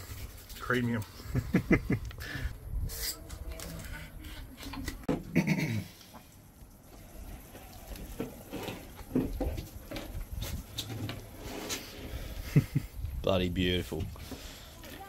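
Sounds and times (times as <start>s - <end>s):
low wind rumble: 1.4s - 3.6s, 7.0s - 14.3s.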